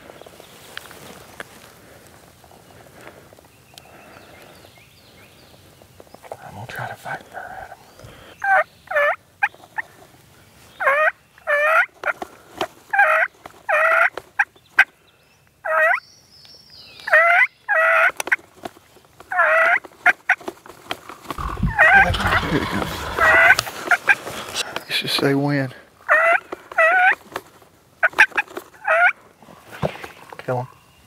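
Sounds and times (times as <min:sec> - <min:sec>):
rustle of movement: 0:00.0 - 0:04.6, 0:18.2 - 0:25.3
turkey gobbling: 0:12.9 - 0:14.1, 0:21.4 - 0:24.2, 0:26.1 - 0:27.2, 0:28.0 - 0:29.2.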